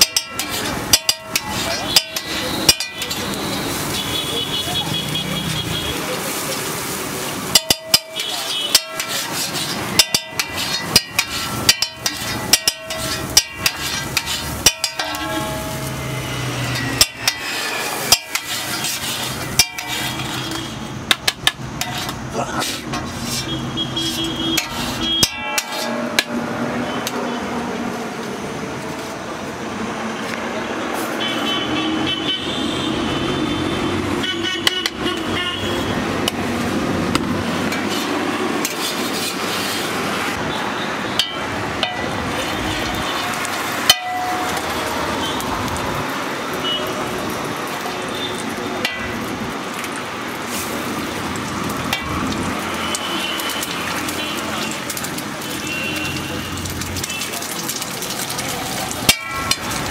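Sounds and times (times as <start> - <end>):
steel utensils clinking: 0.0 - 4.0, 6.3 - 27.2, 36.2 - 40.0, 41.0 - 45.8, 51.8 - 59.9
street traffic: 0.0 - 59.9
vehicle horns tooting: 1.5 - 6.2, 8.0 - 9.1, 23.3 - 26.1, 31.1 - 36.1, 46.6 - 47.1, 52.7 - 57.4.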